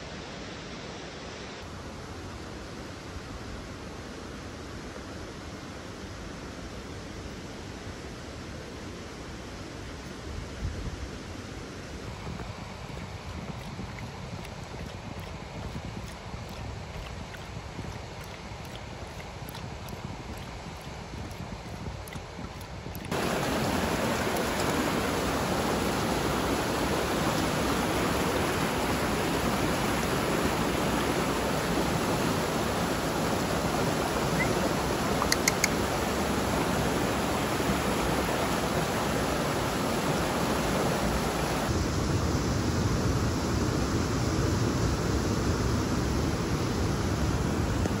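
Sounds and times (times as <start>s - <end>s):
stream flowing over rocks: 11.2s - 41.8s
faint short ticks: 35.2s - 35.8s.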